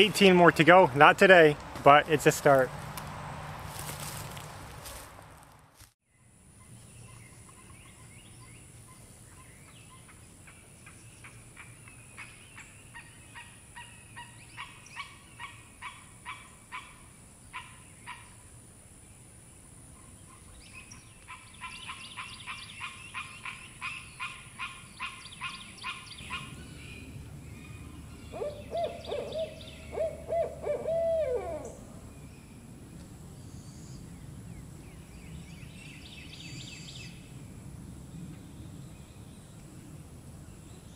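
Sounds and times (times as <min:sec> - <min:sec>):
owls hooting: 0:28.3 - 0:31.8.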